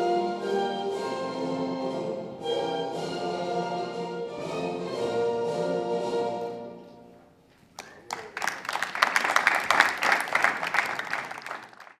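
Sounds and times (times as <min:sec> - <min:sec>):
orchestral anthem: 0:00.0 - 0:07.2
audience applause: 0:07.8 - 0:12.0.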